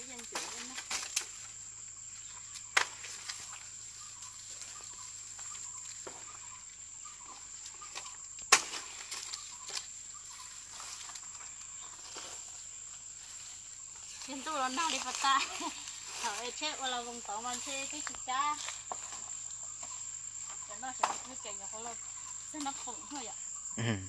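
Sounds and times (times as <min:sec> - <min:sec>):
leaves rustling: 0:00.0 - 0:23.4
plant stalks snapping: 0:00.1 - 0:01.4, 0:02.6 - 0:03.5, 0:08.0 - 0:09.9.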